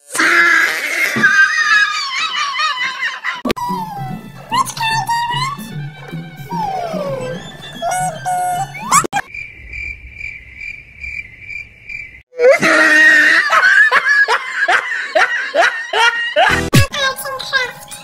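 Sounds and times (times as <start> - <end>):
high-pitched laughter: 0.4 - 5.6, 6.5 - 9.2, 12.4 - 16.7.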